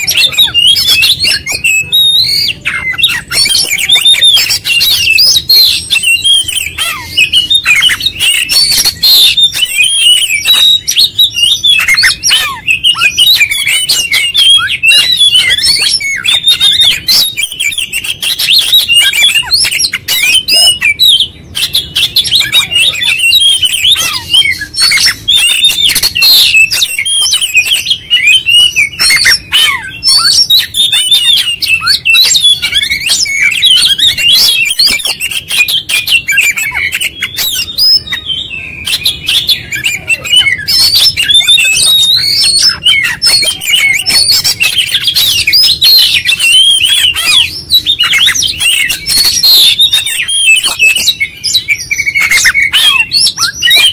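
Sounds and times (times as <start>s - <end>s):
bird singing: 0.0s - 53.9s.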